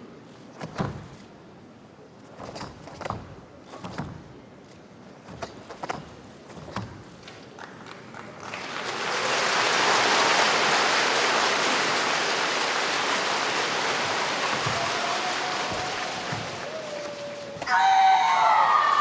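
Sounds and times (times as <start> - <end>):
audience applause: 7.6 - 19.0.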